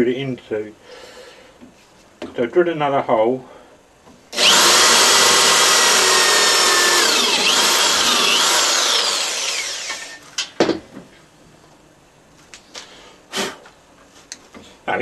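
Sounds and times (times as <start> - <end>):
electric drill whining: 4.4 - 10.2.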